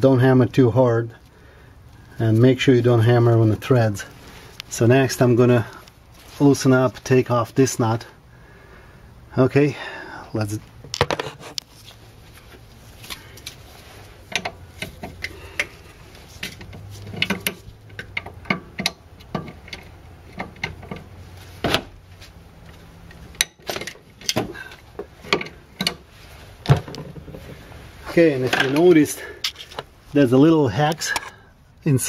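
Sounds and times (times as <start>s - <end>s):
hand tools clicking on metal: 14.3s - 15.8s, 16.4s - 21.1s.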